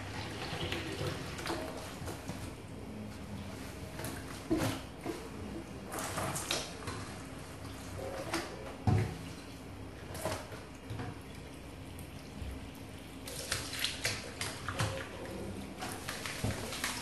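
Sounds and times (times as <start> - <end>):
hands rinsing leaves: 0.0 - 17.0
water splashing: 13.2 - 17.0.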